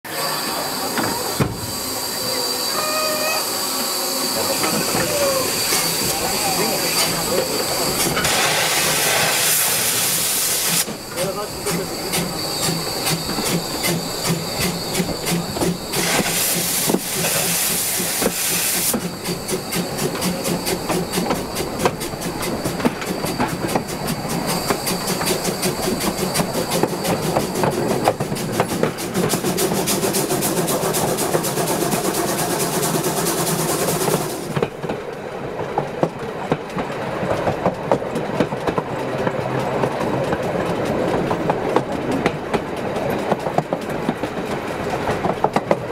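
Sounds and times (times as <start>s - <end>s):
steam hiss: 0.1s - 34.6s
train wheels clattering on rails: 0.1s - 45.9s.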